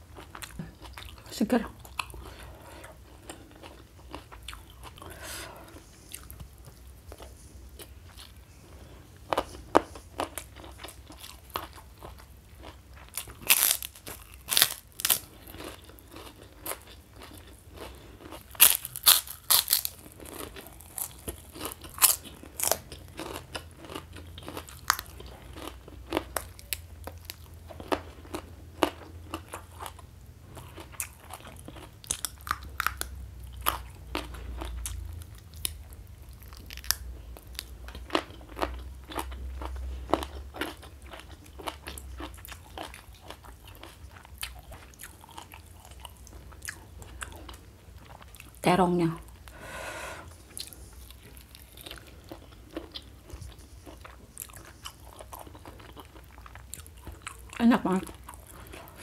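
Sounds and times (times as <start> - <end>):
chewing: 0.2 - 48.6, 50.4 - 59.0
crackers crunching: 9.2 - 48.6.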